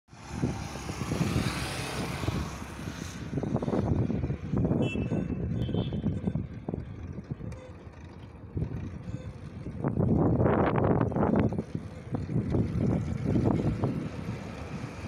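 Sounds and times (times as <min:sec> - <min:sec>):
wind buffeting microphone: 0:00.2 - 0:15.0.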